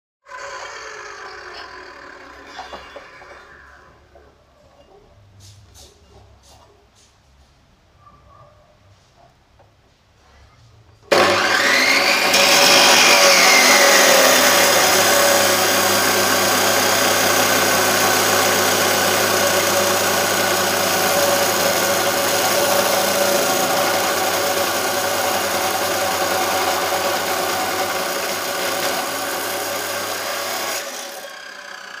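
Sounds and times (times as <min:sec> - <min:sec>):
cut-off saw grinding steel: 0:00.2 - 0:03.9, 0:11.1 - 0:32.0.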